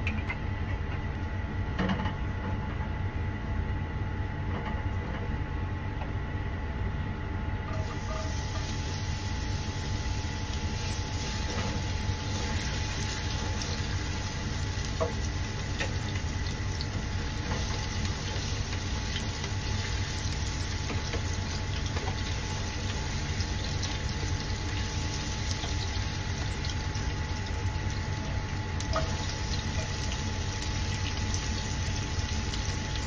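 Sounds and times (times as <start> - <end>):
machine-like hum: 0.0 - 33.0
garlic sizzling in oil: 7.8 - 33.0.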